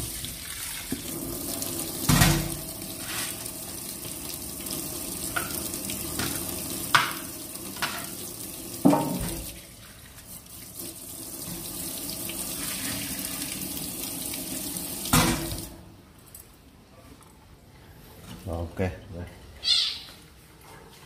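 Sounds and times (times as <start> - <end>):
tap running into metal sink: 2.0 - 2.6, 5.2 - 8.2, 8.8 - 9.5, 15.0 - 15.7.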